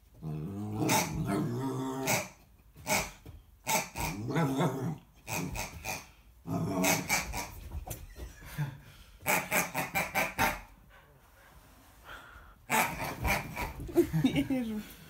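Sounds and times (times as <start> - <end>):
puppy growling in play: 0.1 - 7.7.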